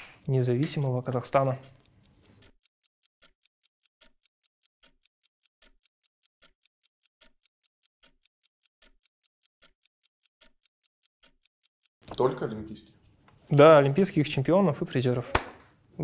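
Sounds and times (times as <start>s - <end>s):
countdown timer ticking: 0.0s - 12.0s.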